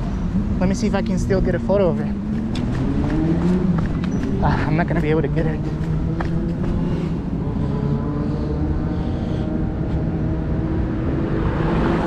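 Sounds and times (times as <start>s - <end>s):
vehicle engine running: 0.6s - 9.6s
car passing close by: 2.2s - 12.0s.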